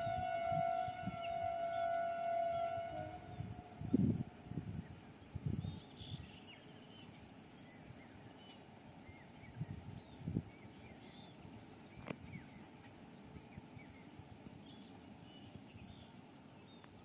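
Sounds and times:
faint outdoor hiss: 0:00.0 - 0:17.0.

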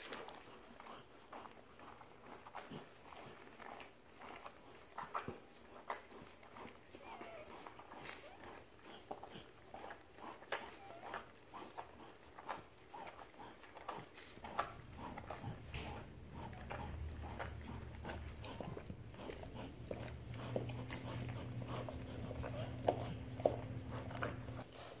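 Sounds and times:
dog licking puppies: 0:00.0 - 0:25.0
low steady hum: 0:13.7 - 0:25.0.

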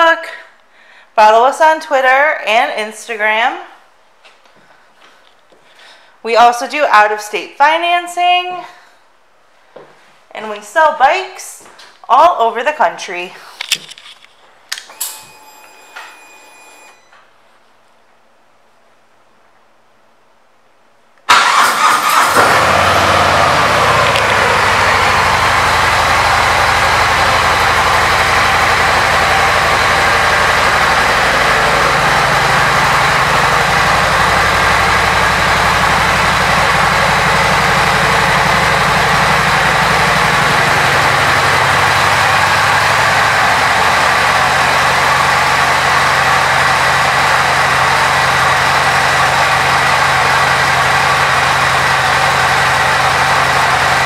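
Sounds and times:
motorcycle engine starting: 0:21.3 - 0:54.0
motorcycle engine idling: 0:21.5 - 0:54.0.

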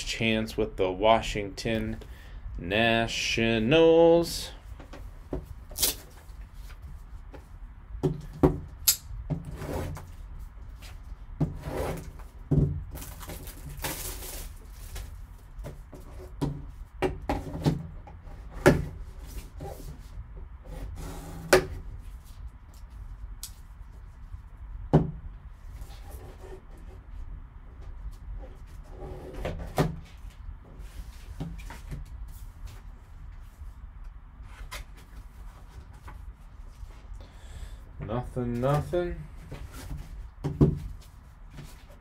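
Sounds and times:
cardboard rustling and scraping: 0:09.3 - 0:23.2, 0:25.6 - 0:33.8, 0:34.4 - 0:37.2, 0:38.6 - 0:42.0.

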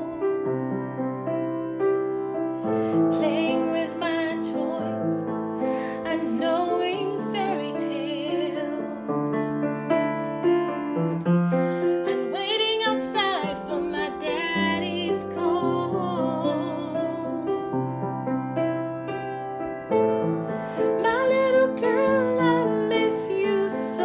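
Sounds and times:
piano chords: 0:00.0 - 0:24.0
woman singing with vibrato: 0:03.1 - 0:05.2, 0:05.9 - 0:09.1, 0:12.0 - 0:17.5, 0:21.0 - 0:24.0.

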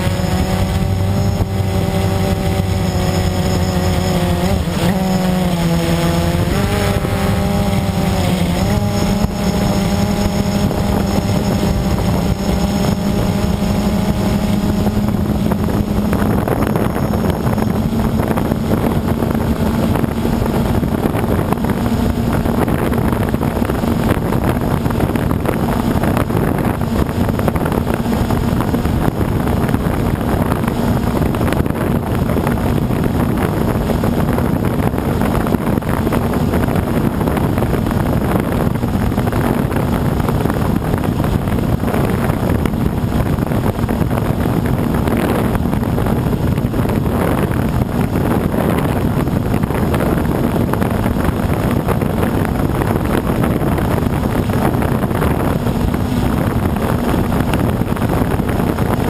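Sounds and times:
drone motors humming: 0:00.0 - 0:29.5
wind on microphone: 0:00.0 - 0:59.0.

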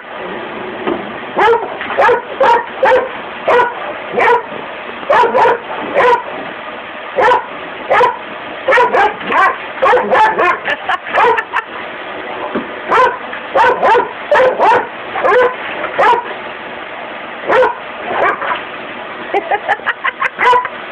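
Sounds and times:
dog barking: 0:01.4 - 0:04.5, 0:05.1 - 0:06.3, 0:07.2 - 0:10.6, 0:11.2 - 0:11.5, 0:12.9 - 0:16.3, 0:17.5 - 0:18.6, 0:20.4 - 0:20.7.

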